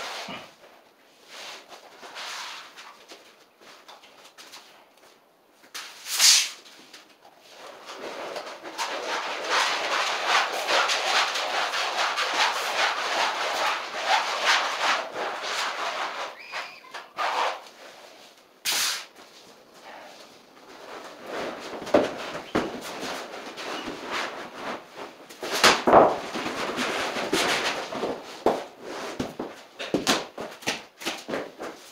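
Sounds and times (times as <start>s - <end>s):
vinyl flooring scraping and rustling: 0.0s - 31.9s.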